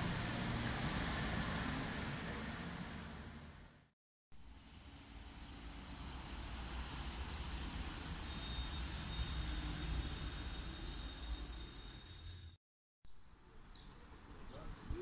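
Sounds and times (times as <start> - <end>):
distant traffic hum: 0.0 - 12.3.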